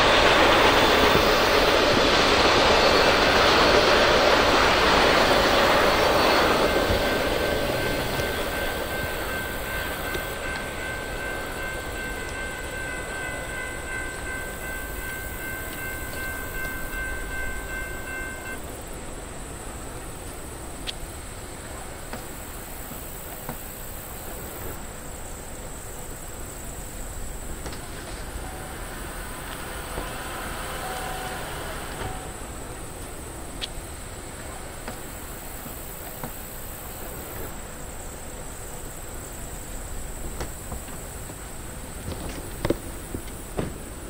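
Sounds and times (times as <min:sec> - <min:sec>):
rolling passenger cars: 0:00.0 - 0:44.0
train rumbling: 0:00.0 - 0:44.0.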